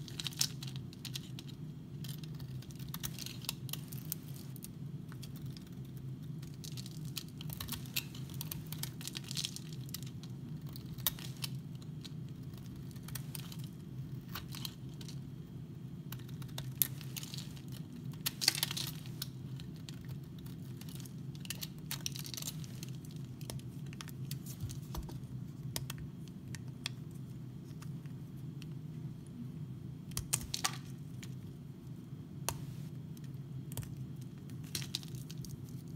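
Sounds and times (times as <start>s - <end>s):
fingers crumbling soap: 0.0s - 15.2s, 16.0s - 27.1s, 32.4s - 35.9s
steady low hum: 0.0s - 35.9s.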